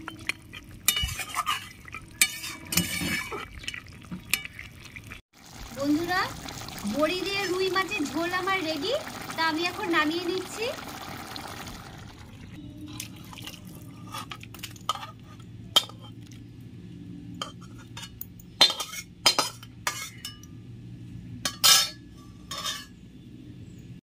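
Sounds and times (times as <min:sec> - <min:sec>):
metal spatula scraping a pan: 0:00.8 - 0:03.7, 0:17.4 - 0:20.4, 0:21.5 - 0:23.0.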